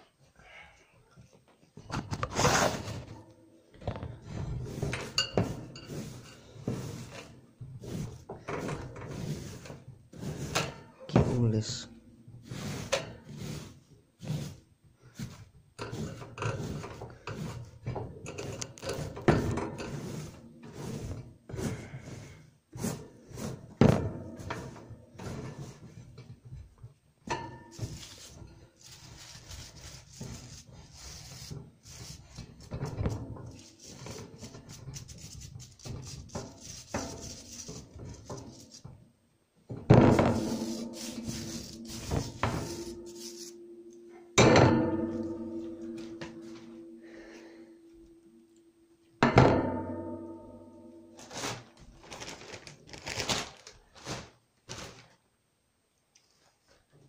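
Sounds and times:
bedding rustling in cage: 51.2s - 55.2s.

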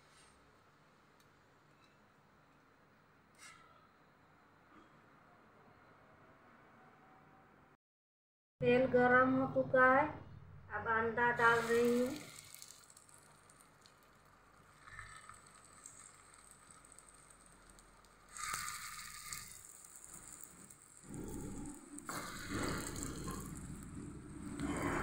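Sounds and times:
eggs crackling in hot oil: 11.4s - 25.0s.

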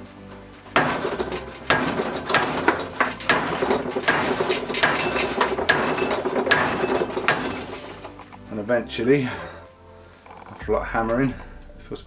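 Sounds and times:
metal-on-metal knocks: 0.8s - 8.3s.

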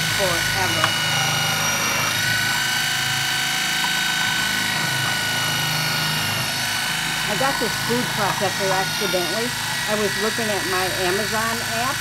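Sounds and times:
food processor motor whining: 0.0s - 12.0s
shredding disc grating squash: 3.7s - 12.0s.

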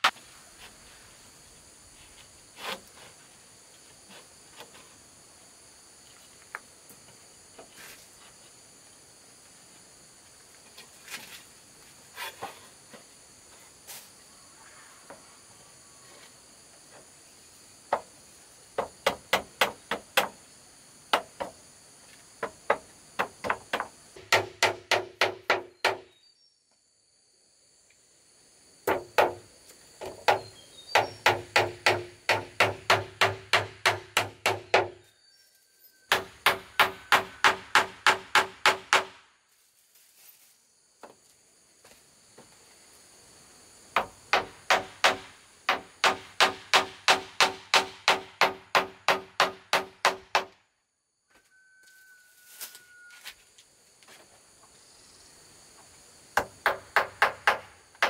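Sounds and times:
high insect drone: 0.1s - 58.0s
hand tool knocking on wood: 22.4s - 26.0s.

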